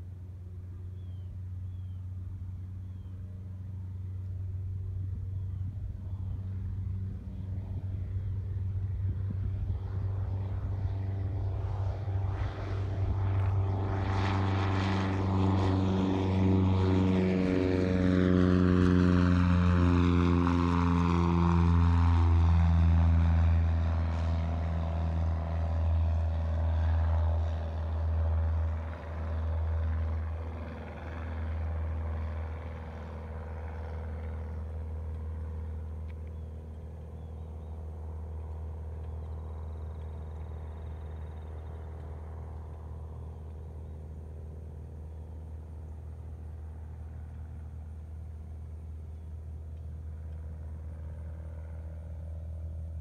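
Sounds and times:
propeller plane engine droning: 0:00.0 - 0:53.0
steady low hum: 0:00.0 - 0:53.0.

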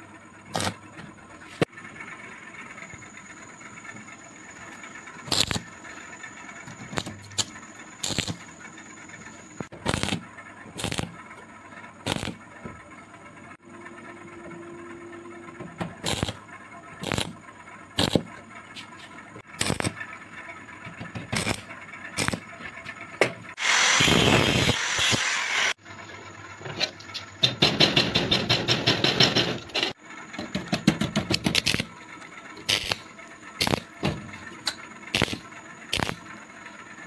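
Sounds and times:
fast rattling pulse: 0:01.8 - 0:12.6, 0:19.5 - 0:20.2
power tool running: 0:04.6 - 0:11.2, 0:12.0 - 0:12.4, 0:16.0 - 0:16.4, 0:17.0 - 0:17.4, 0:19.4 - 0:20.1, 0:21.1 - 0:22.5, 0:23.5 - 0:25.8, 0:32.6 - 0:34.1, 0:35.1 - 0:36.2
sharp metal knocks: 0:27.4 - 0:31.8.

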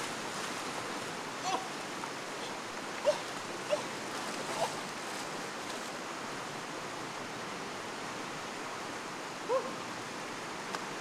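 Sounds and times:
river rushing over rocks: 0:00.0 - 0:11.0
short vocal cry: 0:01.4 - 0:01.7, 0:03.0 - 0:03.9.

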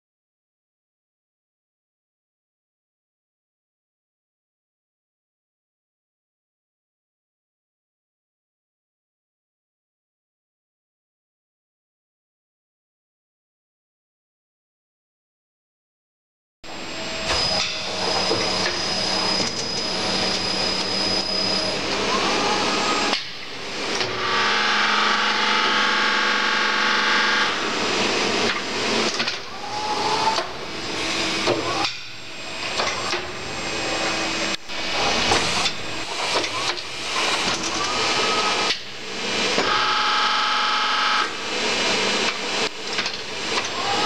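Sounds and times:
rising motor whine: 0:16.7 - 0:31.6
milling machine humming: 0:16.7 - 0:44.0.

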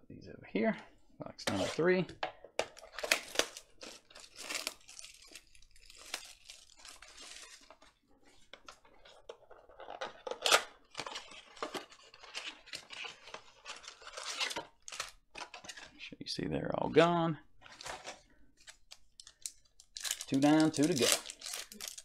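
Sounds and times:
plastic shrink wrap crinkling: 0:02.8 - 0:07.9, 0:17.7 - 0:22.0
foil packs rustling: 0:20.0 - 0:22.0.

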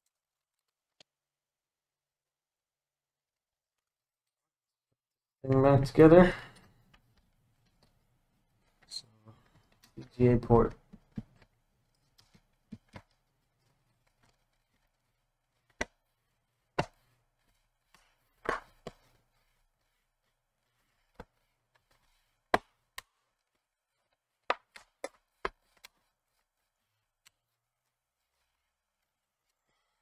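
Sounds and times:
plastic laptop case clicking: 0:12.2 - 0:13.2.

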